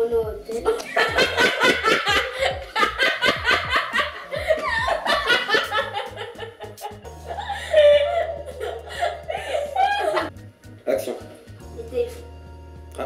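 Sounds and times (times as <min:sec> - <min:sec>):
young people laughing: 0:00.6 - 0:10.3.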